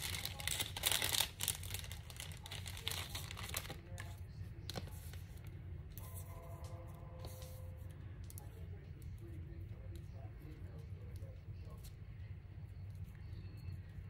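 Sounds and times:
paper rustling and crinkling: 0:00.0 - 0:06.3.

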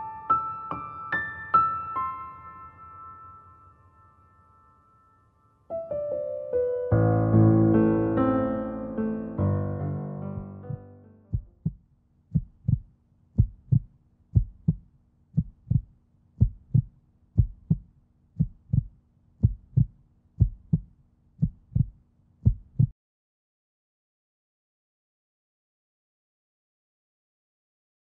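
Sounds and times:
piano music: 0:00.0 - 0:11.6
heartbeat thumps: 0:10.4 - 0:22.9.

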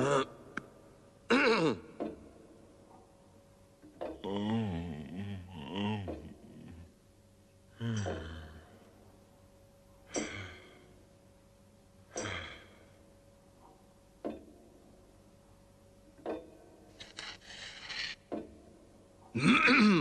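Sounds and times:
men sighing and groaning: 0:04.2 - 0:06.8, 0:10.1 - 0:10.8.

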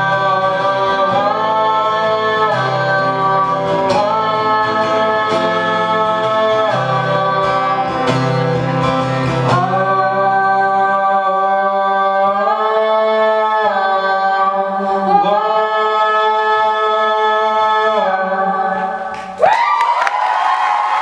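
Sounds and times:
two voices singing in harmony: 0:00.0 - 0:19.4
audience whooping: 0:19.3 - 0:21.0
audience applause: 0:19.4 - 0:21.0.

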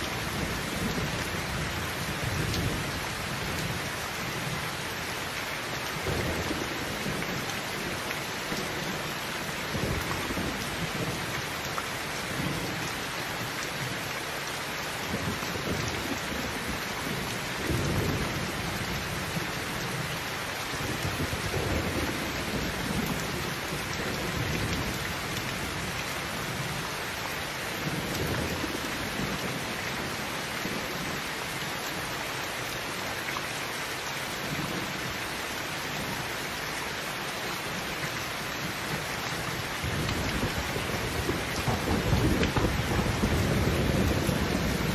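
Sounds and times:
heavy rain falling: 0:00.0 - 0:44.9
low rolling thunder: 0:20.8 - 0:25.9, 0:39.8 - 0:44.9.

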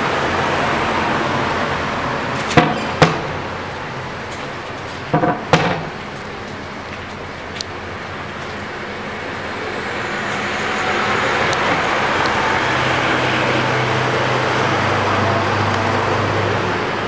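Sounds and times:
road traffic noise: 0:00.0 - 0:17.0
sharp knocks: 0:02.5 - 0:03.4, 0:05.1 - 0:06.1.

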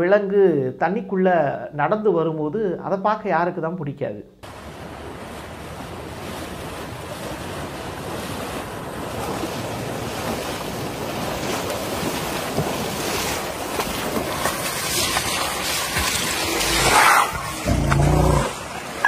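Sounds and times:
floodwater rushing and splashing: 0:04.4 - 0:19.0.

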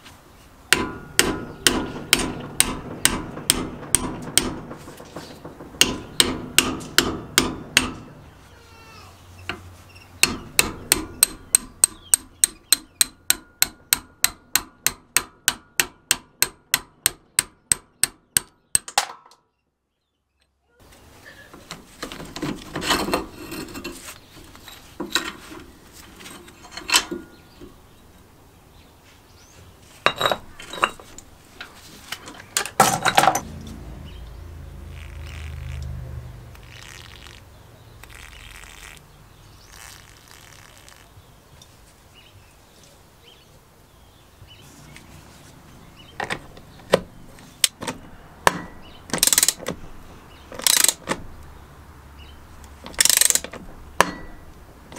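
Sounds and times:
hammer striking steel punch: 0:00.7 - 0:08.2, 0:10.2 - 0:19.2, 0:48.5 - 0:49.3, 0:54.0 - 0:54.4
metal clinks and scrapes: 0:21.9 - 0:27.4, 0:30.0 - 0:33.5.

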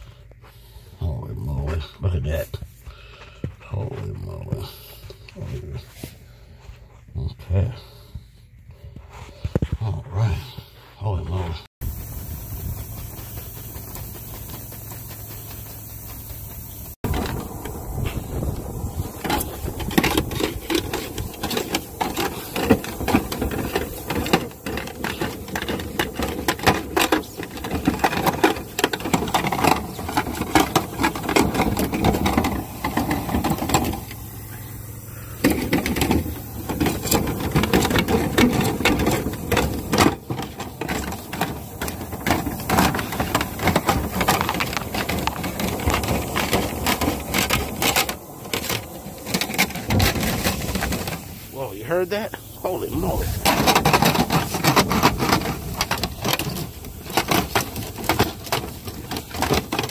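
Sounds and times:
steady hum: 0:00.0 - 0:59.9
rotary brush clattering in duct: 0:11.8 - 0:59.9.

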